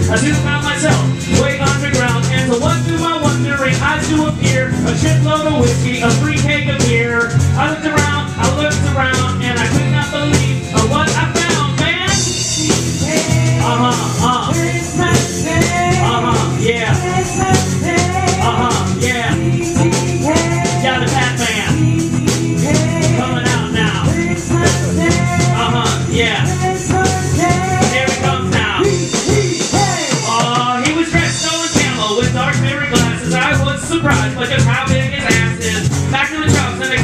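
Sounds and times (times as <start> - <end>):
live rock band playing: 0.0 - 37.0
man singing lead: 0.0 - 37.0.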